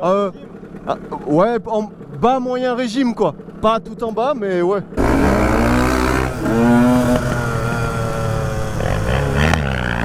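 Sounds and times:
two-stroke dirt bike running: 0.0s - 10.0s
motorcycle revving hard: 5.0s - 10.0s.

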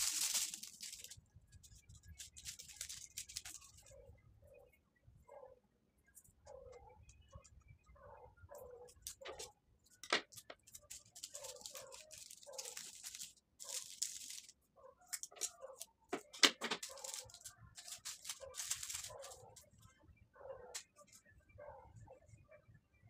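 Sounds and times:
ribbon and tape rustling: 0.0s - 3.9s, 8.9s - 19.7s.

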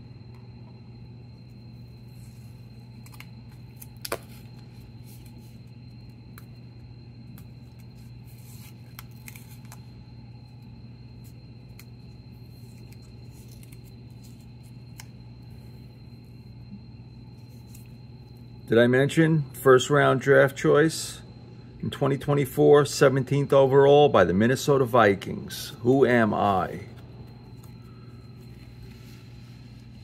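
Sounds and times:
steady low hum: 0.0s - 30.0s
tape peeling crackles: 3.0s - 5.5s, 7.3s - 9.9s, 11.2s - 15.2s.

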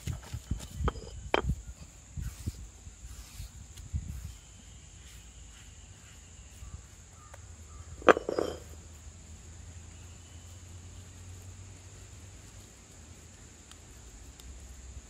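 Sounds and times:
stone grinding on stone: 0.8s - 1.5s, 8.0s - 8.8s.

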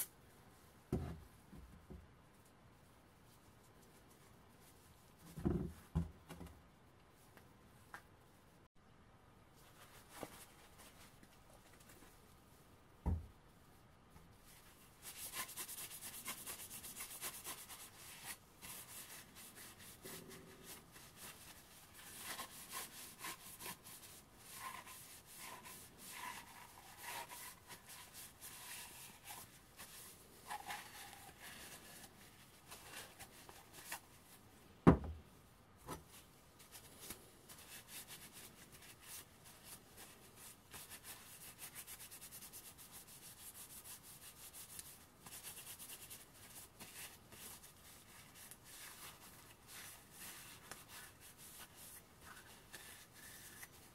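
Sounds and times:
cloth rubbing on metal parts: 14.3s - 34.7s, 35.5s - 53.9s.

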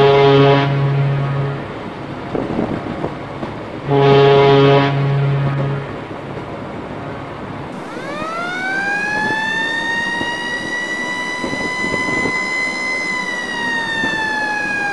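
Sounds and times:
siren wailing: 7.8s - 14.9s.

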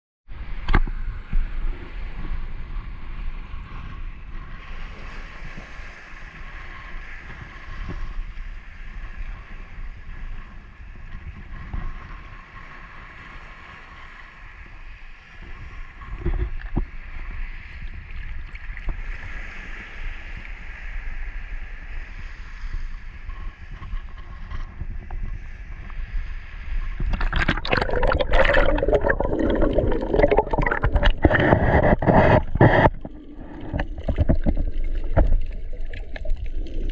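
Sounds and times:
muffled water sloshing: 27.0s - 36.9s
underwater splashing and bubbling: 27.0s - 36.9s.

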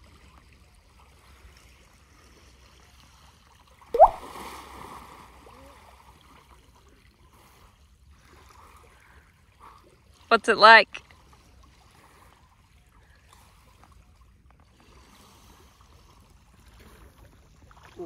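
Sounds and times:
water lapping: 1.1s - 18.0s
loud splash of diving: 4.0s - 5.2s.

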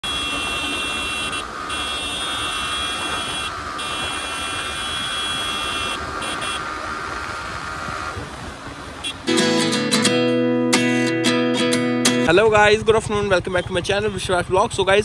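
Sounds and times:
motorcycle engine high whine: 0.0s - 9.9s, 12.2s - 15.0s
wind rushing over microphone: 2.3s - 9.1s.

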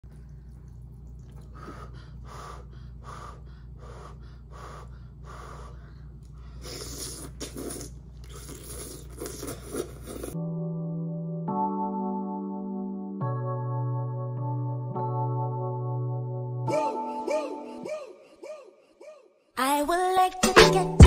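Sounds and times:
breathy eating sounds: 0.0s - 10.4s
low steady hum: 0.0s - 10.4s
wet slurping of noodles: 6.6s - 10.4s
electric piano music: 10.4s - 17.9s.

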